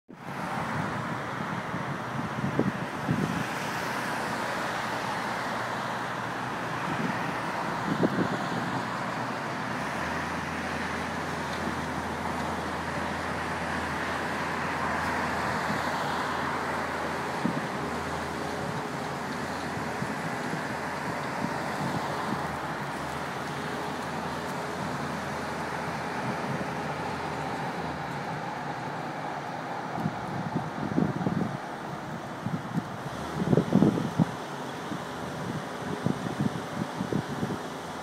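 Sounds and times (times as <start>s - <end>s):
city road traffic: 0.1s - 38.0s
low tram hum: 0.1s - 38.0s.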